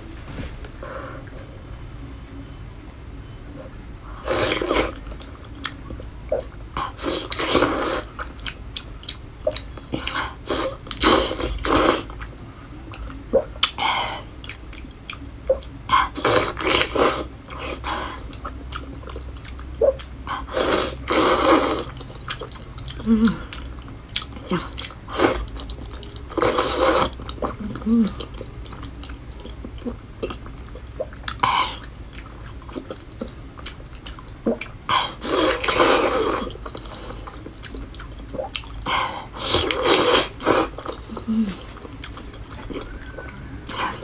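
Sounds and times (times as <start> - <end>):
chewing and mouth sounds: 14.4 - 44.0.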